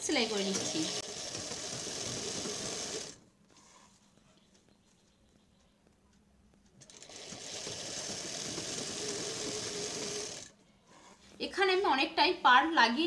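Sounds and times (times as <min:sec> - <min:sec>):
sewing machine running: 0:00.0 - 0:03.2, 0:06.8 - 0:10.5.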